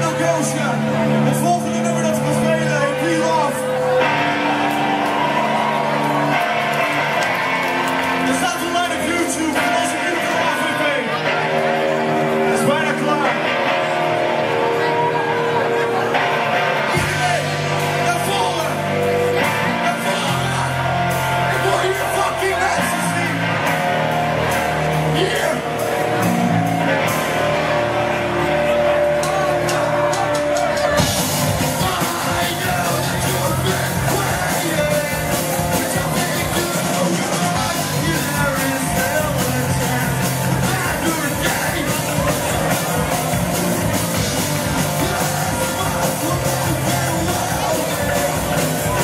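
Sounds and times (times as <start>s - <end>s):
audience shouting: 0.0s - 49.0s
bass guitar: 0.0s - 49.0s
drums: 0.0s - 49.0s
electric guitars: 0.0s - 49.0s
live rock band playing: 0.0s - 49.0s
lead singer: 28.7s - 49.0s.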